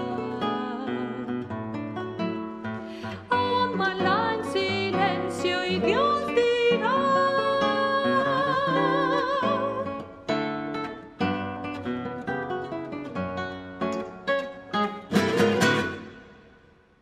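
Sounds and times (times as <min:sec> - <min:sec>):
woman singing with vibrato: 0:00.0 - 0:01.5, 0:03.0 - 0:10.0
classical guitar plucking: 0:00.0 - 0:17.0.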